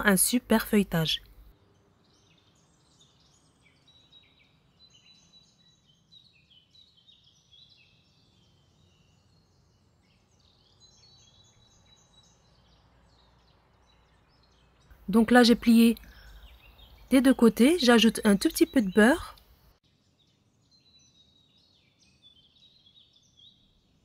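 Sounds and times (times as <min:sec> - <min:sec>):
faint birds chirping: 0:00.0 - 0:24.0.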